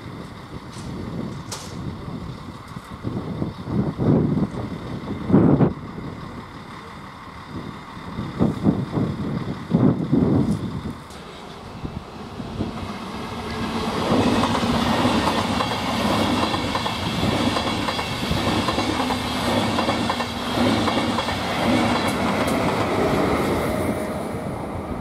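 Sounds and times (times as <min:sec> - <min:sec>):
train passing at speed: 0:00.0 - 0:25.0
wheels clacking over rail joints: 0:00.2 - 0:02.0, 0:10.5 - 0:11.8, 0:12.7 - 0:23.0.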